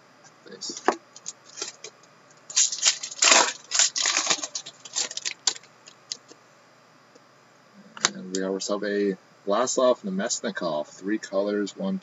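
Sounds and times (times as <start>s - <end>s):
card wrappers crinkling: 1.2s - 1.9s, 2.5s - 6.3s.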